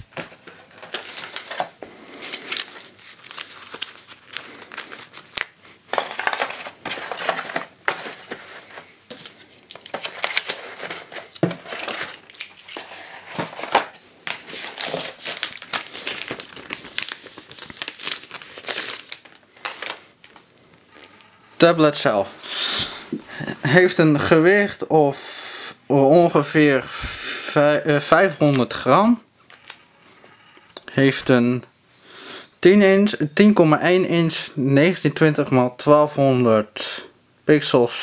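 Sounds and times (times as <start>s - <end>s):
plastic packaging crinkling: 0.0s - 21.2s.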